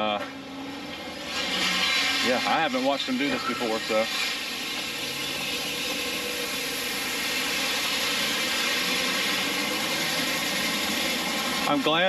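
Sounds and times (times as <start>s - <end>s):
truck engine humming: 0.0s - 12.0s.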